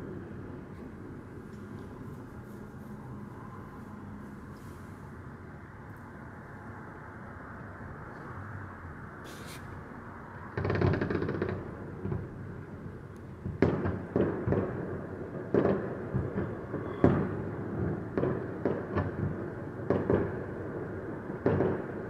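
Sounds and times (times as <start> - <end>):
fireworks banging: 10.5 - 12.4, 13.4 - 20.6.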